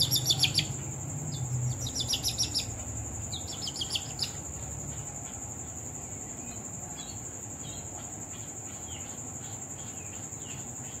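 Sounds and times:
young poultry peeping: 0.0s - 5.4s.

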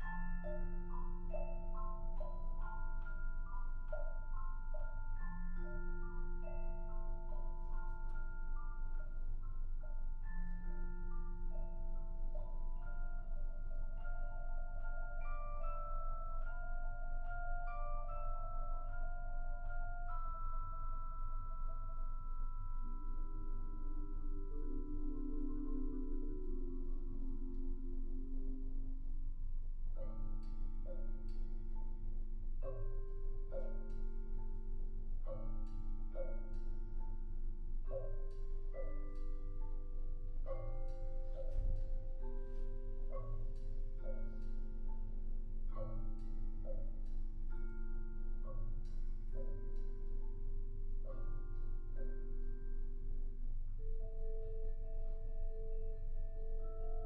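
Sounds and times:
marimbas playing: 0.0s - 29.3s
vibraphone chords ringing: 0.0s - 57.0s.

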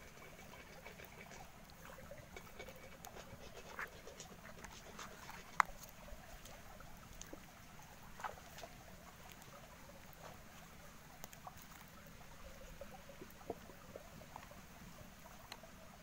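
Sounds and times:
hands squelching chicken in marinade: 0.0s - 7.2s.

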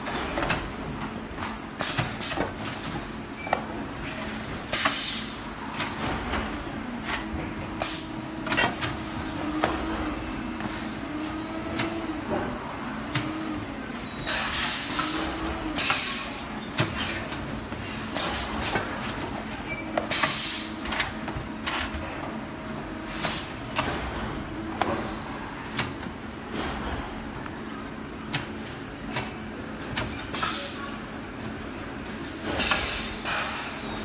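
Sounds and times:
machine clicks and knocks: 0.0s - 3.8s, 25.7s - 27.6s
pneumatic air hisses: 23.0s - 23.6s.

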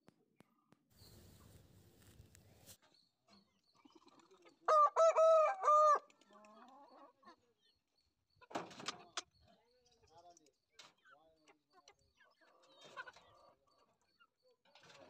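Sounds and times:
rooster crowing: 4.7s - 6.1s.

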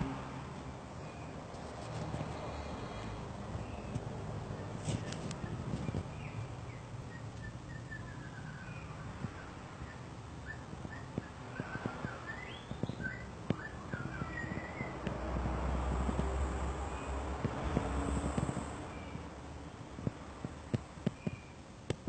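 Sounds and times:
sparrows chirping: 2.5s - 15.1s, 18.2s - 19.3s.

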